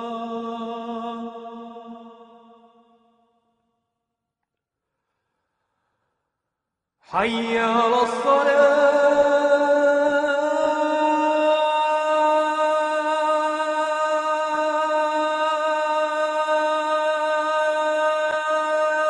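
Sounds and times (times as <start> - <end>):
man singing call to prayer: 0.0 - 2.6, 7.1 - 19.0.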